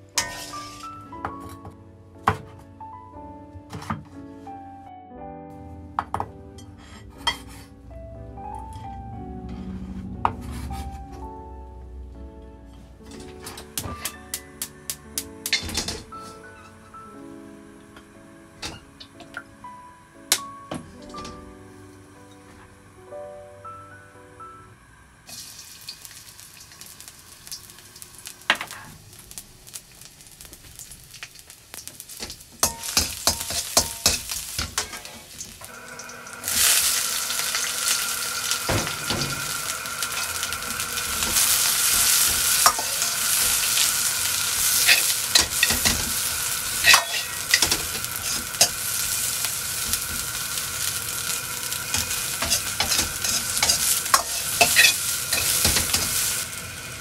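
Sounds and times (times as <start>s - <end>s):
food sizzling in hot oil: 0.0s - 1.2s, 13.1s - 17.2s, 25.2s - 57.0s
metal ladle scraping and tapping a wok: 0.1s - 1.0s, 32.6s - 35.2s, 41.2s - 43.9s, 44.5s - 48.8s, 51.9s - 56.3s.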